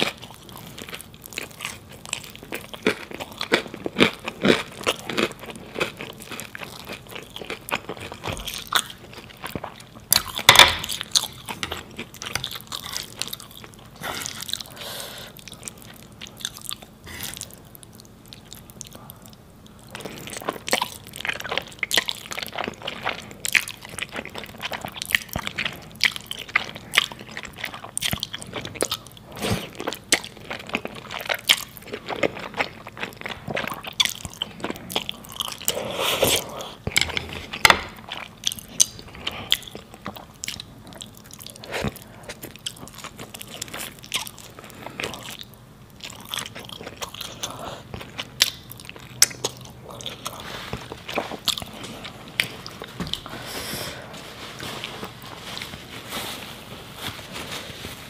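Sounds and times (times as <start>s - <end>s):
wet chewing and biting: 15.4s - 53.3s.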